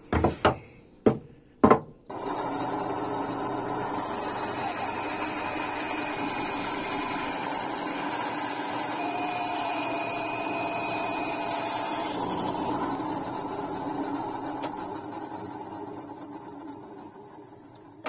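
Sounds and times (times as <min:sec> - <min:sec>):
band saw motor hum: 0:02.1 - 0:16.5
saw blade hissing through wood: 0:03.8 - 0:12.2.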